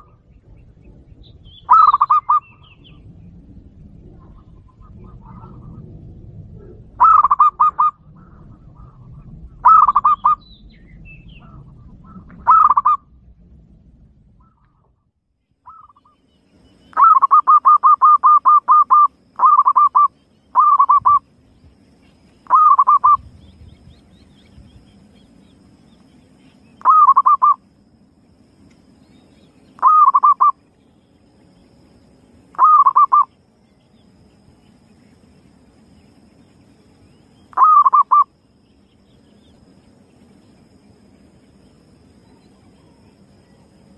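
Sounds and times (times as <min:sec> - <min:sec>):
dove cooing: 0:01.7 - 0:02.9, 0:04.2 - 0:05.9, 0:06.5 - 0:10.4, 0:11.4 - 0:13.0, 0:16.9 - 0:21.2, 0:22.5 - 0:23.3, 0:26.8 - 0:27.6, 0:29.8 - 0:30.6, 0:32.6 - 0:33.3, 0:37.5 - 0:38.3.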